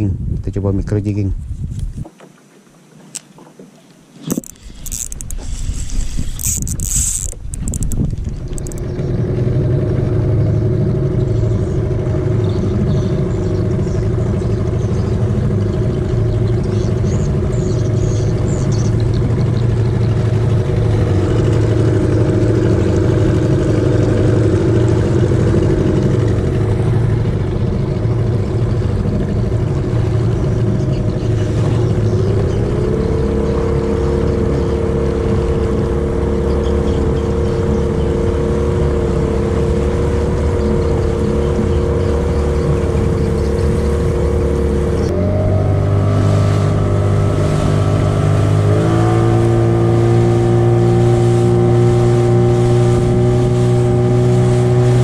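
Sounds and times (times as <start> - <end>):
boat motor droning: 2.0 - 55.0.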